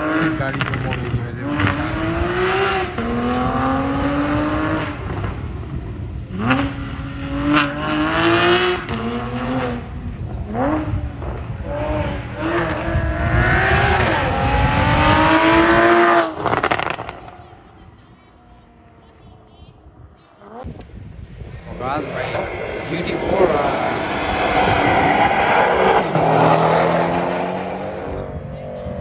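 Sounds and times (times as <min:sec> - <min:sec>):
car engine revving hard: 0:00.0 - 0:17.4, 0:21.6 - 0:29.0.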